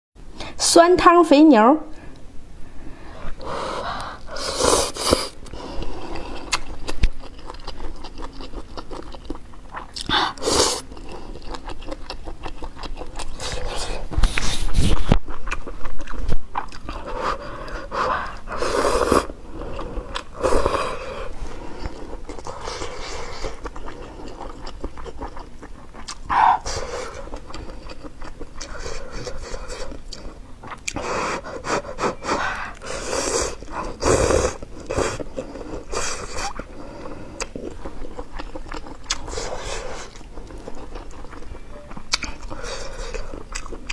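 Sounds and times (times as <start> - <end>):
breathing: 1.9 - 4.4
wet chewing: 3.2 - 43.9.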